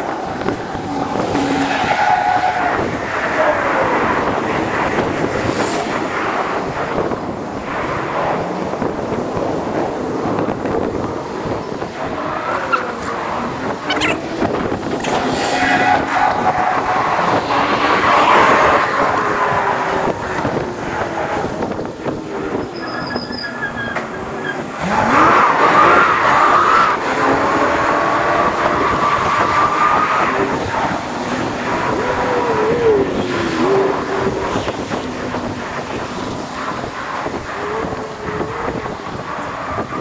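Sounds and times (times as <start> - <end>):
passing vehicle sweep: 0.0 - 22.7
street traffic: 0.0 - 40.0.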